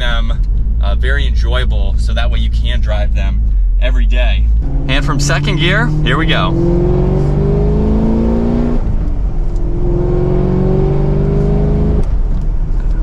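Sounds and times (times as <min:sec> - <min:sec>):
car engine accelerating through gears: 0:04.4 - 0:13.0.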